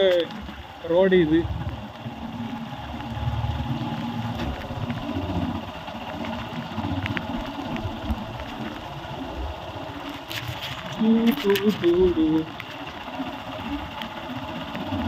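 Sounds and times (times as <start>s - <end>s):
motorcycle engine rumble: 0.0s - 15.0s
tyre and road noise: 0.0s - 15.0s
faint clicks: 1.6s - 8.9s, 9.9s - 15.0s.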